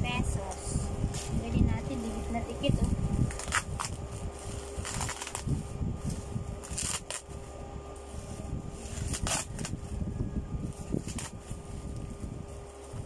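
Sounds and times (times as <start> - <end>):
bubble wrap rustling and crinkling: 0.4 - 13.0
scissors cutting plastic: 2.6 - 7.3, 8.8 - 9.8, 10.8 - 12.1.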